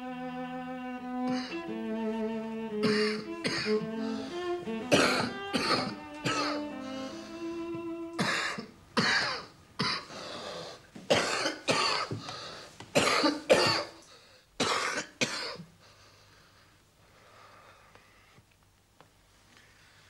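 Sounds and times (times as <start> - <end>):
man coughing: 2.8 - 3.7, 4.9 - 6.6, 11.1 - 12.2, 13.0 - 14.0.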